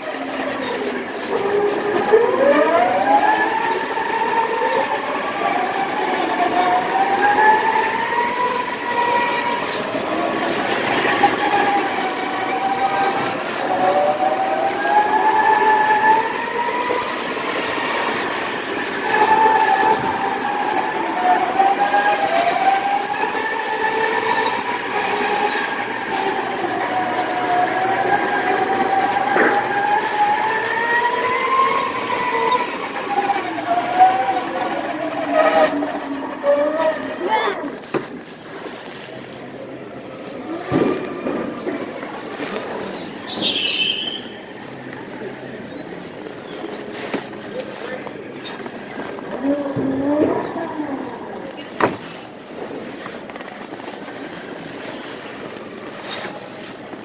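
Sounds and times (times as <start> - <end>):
go-karts whining: 0.0 - 57.0
constant rushing noise: 44.2 - 57.0.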